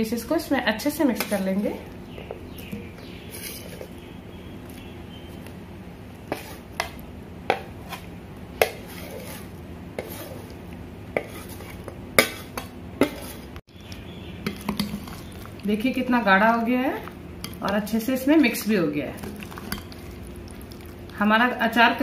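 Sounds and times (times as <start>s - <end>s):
metal spoon scraping plate: 3.2s - 3.9s, 8.7s - 10.5s.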